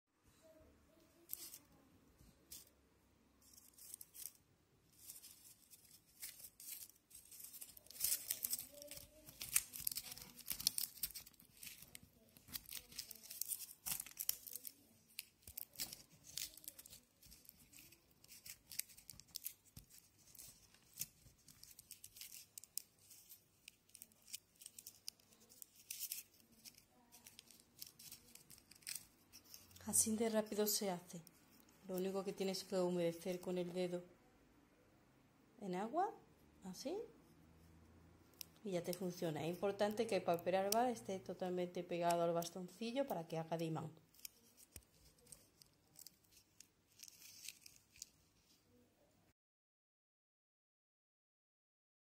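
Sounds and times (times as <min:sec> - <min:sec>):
aluminium foil crinkling: 0:01.2 - 0:01.6, 0:03.4 - 0:33.5, 0:38.3 - 0:48.6.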